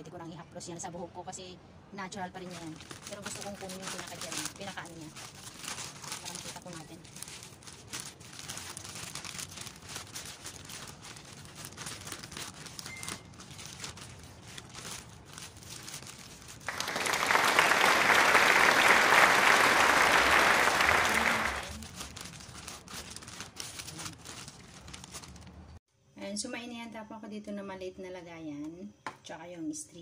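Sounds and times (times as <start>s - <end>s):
plastic bag crinkling and rustling: 2.3s - 25.8s.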